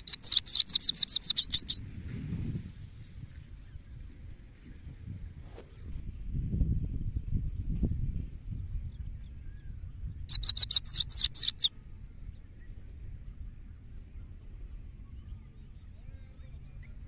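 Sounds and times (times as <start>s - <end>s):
goldfinch twittering: 0.0s - 1.8s, 10.3s - 11.7s.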